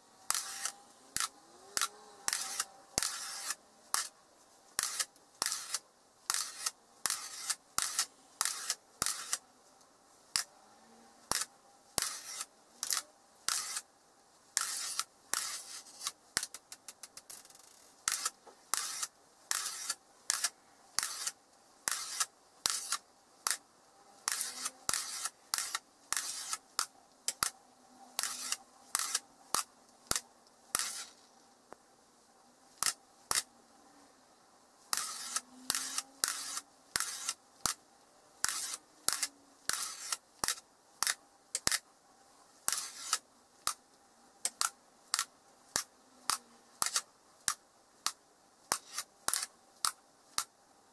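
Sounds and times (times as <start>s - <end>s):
magnetic balls clicking: 0.2s - 4.2s, 4.8s - 9.4s, 14.6s - 27.6s, 44.4s - 50.6s.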